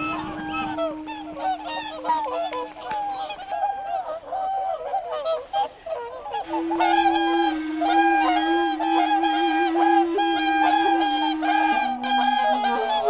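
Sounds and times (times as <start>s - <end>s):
steady low tone: 0.0s - 3.2s, 6.4s - 13.0s
swans calling: 0.0s - 13.0s.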